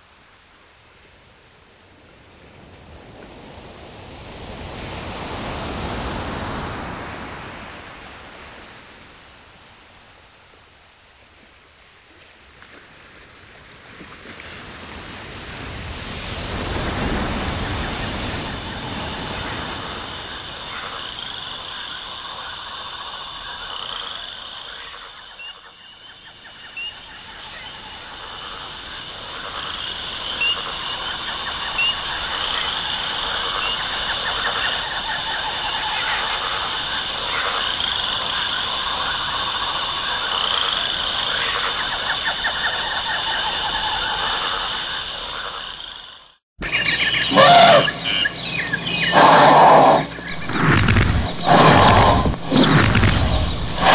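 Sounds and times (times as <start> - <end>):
frogs and insects chorus: 14.6 - 53.9.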